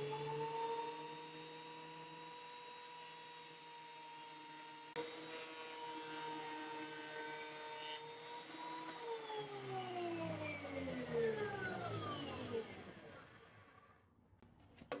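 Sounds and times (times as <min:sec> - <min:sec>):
planer motor whine winding down: 0:00.0 - 0:14.1.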